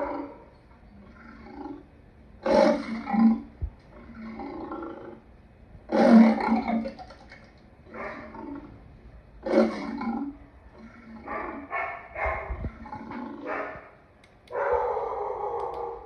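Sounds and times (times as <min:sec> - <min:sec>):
lion roaring: 0:00.0 - 0:05.3, 0:05.9 - 0:07.0, 0:07.9 - 0:08.8, 0:09.4 - 0:13.8.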